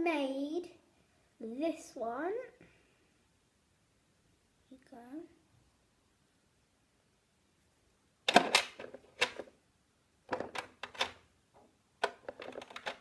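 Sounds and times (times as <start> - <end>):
plastic toy pieces clattering: 12.0 - 13.0.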